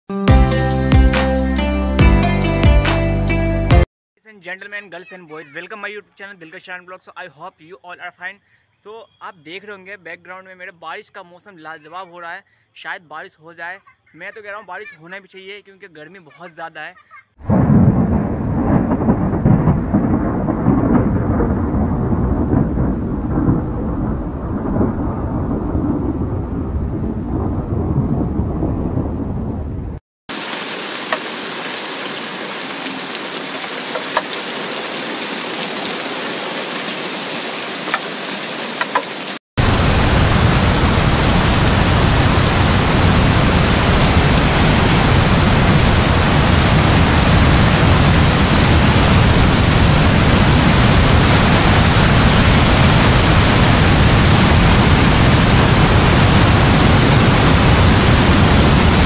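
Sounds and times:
strong wind: 0:17.4 - 0:30.0, 0:39.6 - 0:59.0
thunder rumbling: 0:17.4 - 0:30.4, 0:39.6 - 0:59.0
heavy rain hissing: 0:30.3 - 0:59.0.

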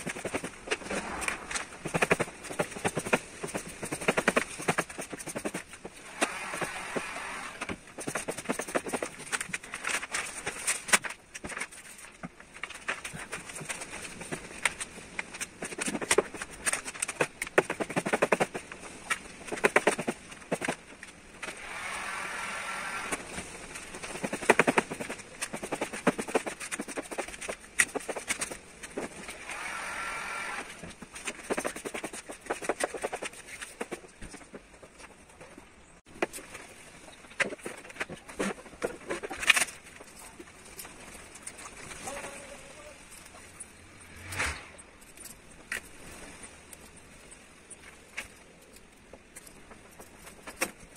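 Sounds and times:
vinyl film crackling: 0:00.0 - 0:21.7.

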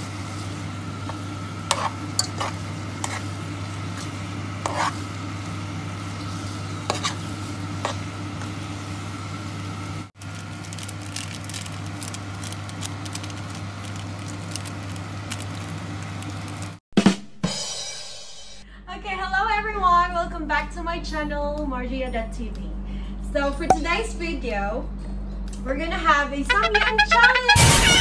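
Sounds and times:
noodles sizzling in a pan: 0:00.0 - 0:16.8
fork scraping a pan: 0:01.1 - 0:05.2, 0:06.4 - 0:08.1.

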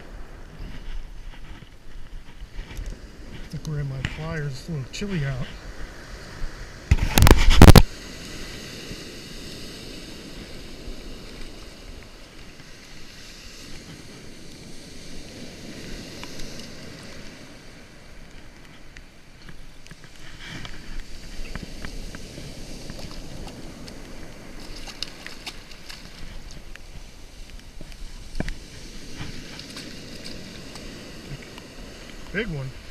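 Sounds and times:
surf washing in: 0:00.0 - 0:32.9
wind: 0:00.0 - 0:32.9
microphone knock and rustle: 0:06.9 - 0:07.9.

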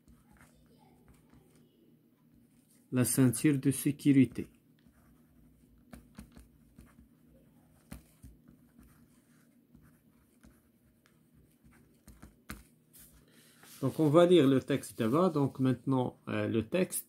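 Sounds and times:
pen scratching on paper: 0:00.0 - 0:01.6, 0:04.4 - 0:13.2.

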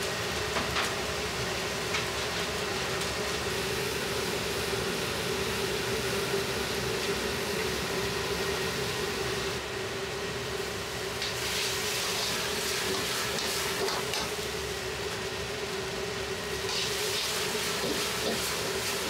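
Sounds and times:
gas burner and extraction roar: 0:00.0 - 0:19.0.

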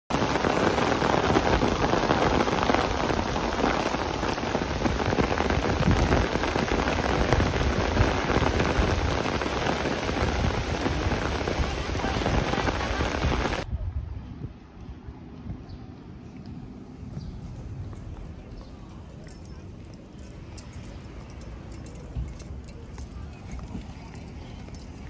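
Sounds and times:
rain on pavement and grass: 0:00.1 - 0:13.7.

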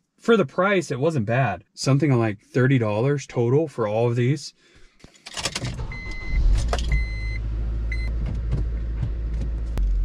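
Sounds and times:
car engine starting and idling: 0:05.3 - 0:10.0.

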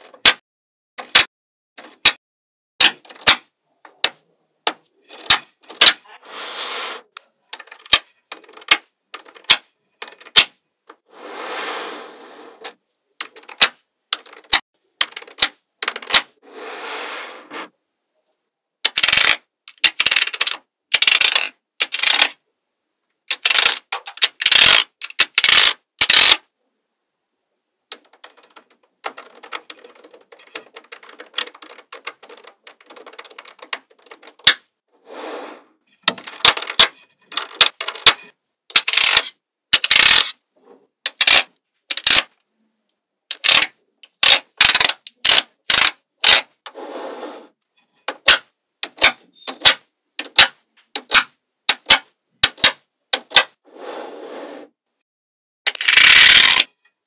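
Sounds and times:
balls rattling against each other: 0:07.5 - 0:11.0, 0:27.9 - 0:34.7
magnetic balls clicking together: 0:18.9 - 0:22.3, 0:23.3 - 0:26.4, 0:36.0 - 0:40.3, 0:41.0 - 0:42.3, 0:43.3 - 0:46.4, 0:48.1 - 0:53.4.

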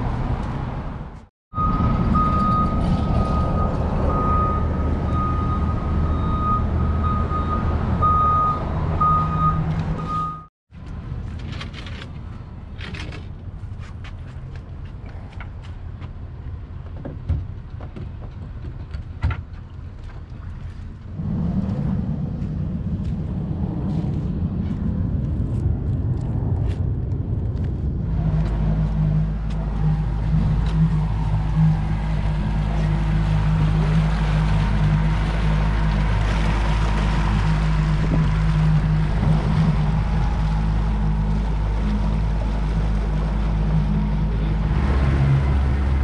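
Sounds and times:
vehicle driving on a road: 0:00.0 - 0:46.0
gear clicks and knocks: 0:10.8 - 0:16.2
water washing in a wake: 0:28.2 - 0:46.0
outboard motor running: 0:29.5 - 0:46.0.

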